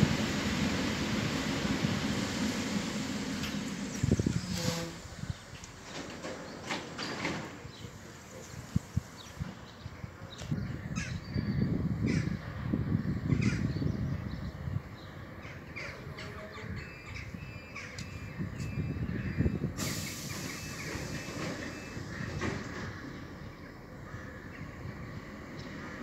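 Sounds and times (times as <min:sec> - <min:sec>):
compressed air hiss from train: 0:00.0 - 0:05.3, 0:07.8 - 0:09.6, 0:19.7 - 0:22.2
electric train running idle: 0:00.0 - 0:05.8
crows cawing: 0:24.0 - 0:24.6.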